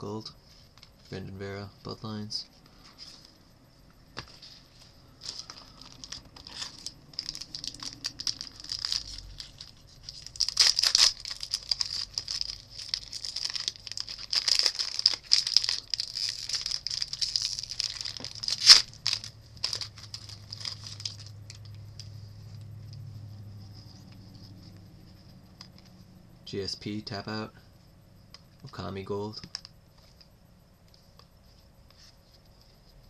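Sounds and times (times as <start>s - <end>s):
foil wrapper tearing and crinkling: 5.2s - 21.8s.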